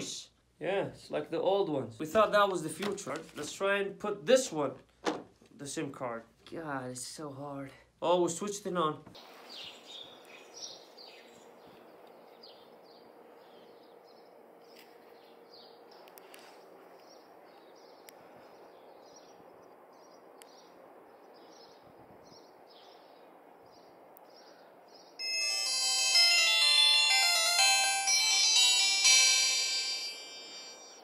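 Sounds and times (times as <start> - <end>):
outdoor background noise: 0.0 - 25.2
birds chirping: 9.2 - 25.3
phone power-on melody: 25.2 - 31.0.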